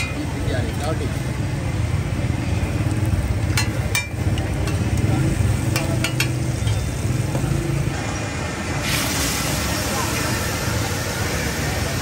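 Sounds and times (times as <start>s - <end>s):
liver frying on a griddle: 0.0s - 12.0s
metal spatula knocking griddle: 5.7s - 6.8s.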